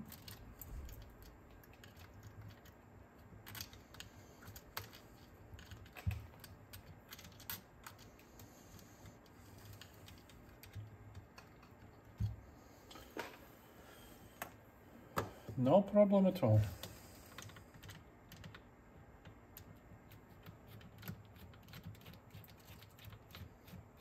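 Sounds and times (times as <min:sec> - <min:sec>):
small parts and tools clicking: 0:00.0 - 0:13.1.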